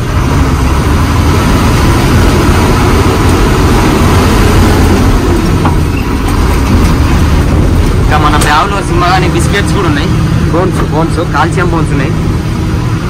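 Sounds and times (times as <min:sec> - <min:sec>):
lorry diesel engine drone: 0:00.0 - 0:13.0
road and wind noise: 0:00.0 - 0:13.0.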